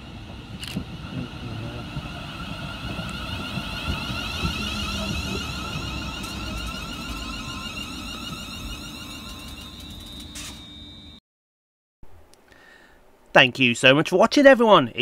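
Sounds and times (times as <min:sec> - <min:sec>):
train inverter whine: 0:00.0 - 0:11.2
wheels rumbling on rails: 0:00.0 - 0:11.2.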